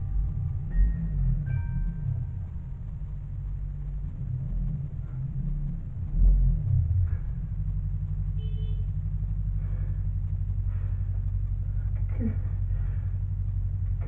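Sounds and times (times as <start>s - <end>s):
low rumbling drone: 0.0s - 14.0s.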